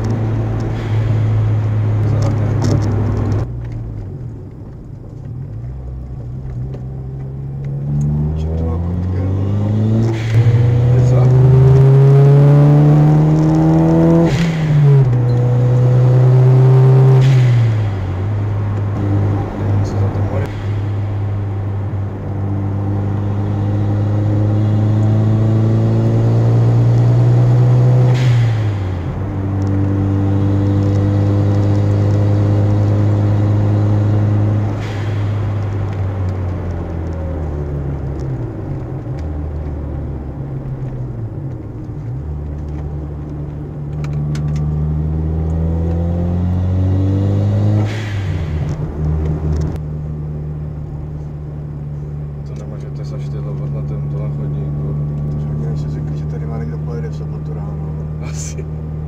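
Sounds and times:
blow-off valve whoosh: 0:00.2 - 0:02.1, 0:20.4 - 0:25.3, 0:27.8 - 0:29.5, 0:33.8 - 0:36.7, 0:47.5 - 0:49.5
car engine revving hard: 0:07.7 - 0:40.2, 0:44.0 - 0:49.8.

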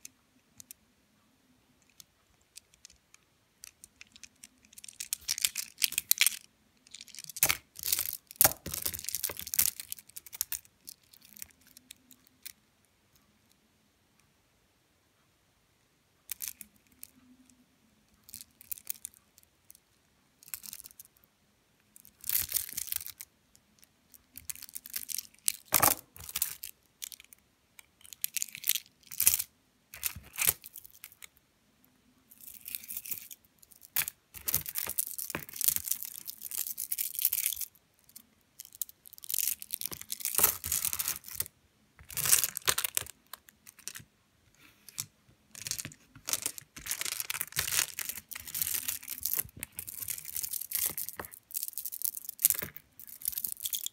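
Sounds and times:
stone beads clicking and rattling: 0:32.4 - 0:37.8, 0:38.6 - 0:41.5, 0:45.6 - 0:53.9.

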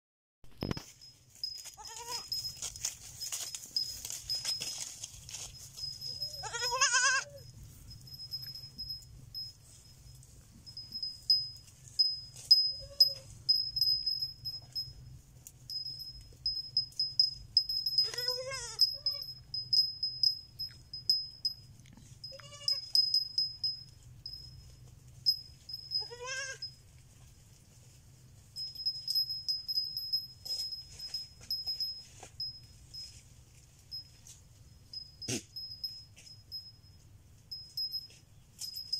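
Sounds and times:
baby goat bleating: 0:01.8 - 0:02.3, 0:06.3 - 0:07.4, 0:18.0 - 0:18.8, 0:22.3 - 0:22.9, 0:26.0 - 0:26.6.

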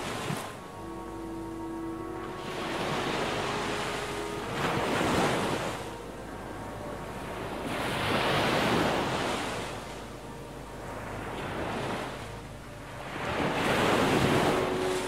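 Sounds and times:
sea waves washing over rocks: 0:00.0 - 0:00.6.

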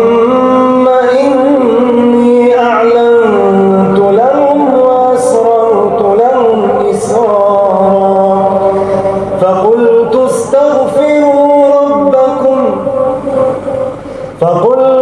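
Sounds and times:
man chanting melodically: 0:00.0 - 0:15.0.

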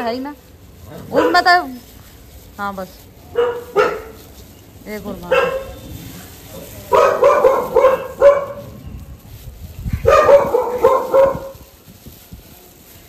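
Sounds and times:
dog barking: 0:01.1 - 0:01.6, 0:03.3 - 0:04.2, 0:05.2 - 0:05.8, 0:06.9 - 0:08.8, 0:10.0 - 0:11.6.

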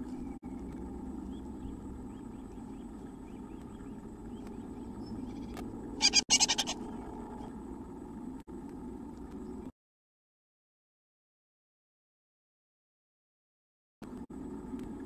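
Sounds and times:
steady low hum: 0:00.0 - 0:09.7, 0:14.0 - 0:15.0.

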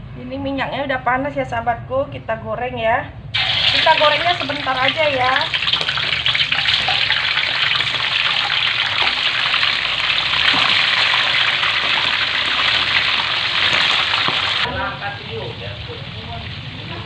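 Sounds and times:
chicken sizzling in hot oil: 0:03.4 - 0:17.0.

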